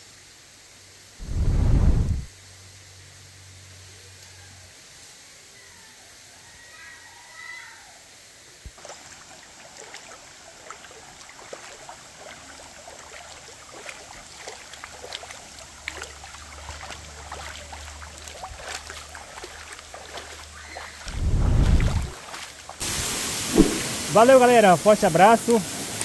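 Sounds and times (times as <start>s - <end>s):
low rumble: 1.2s - 2.3s, 21.1s - 22.2s
stream trickling over stones: 8.6s - 26.0s.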